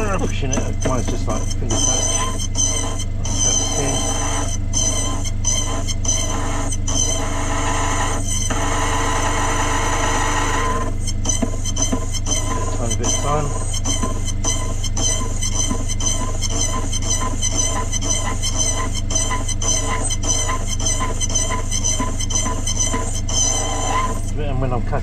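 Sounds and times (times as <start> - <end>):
cutter wheel grinding key: 0.0 - 7.4, 10.1 - 24.3
motor low hum: 0.0 - 25.0.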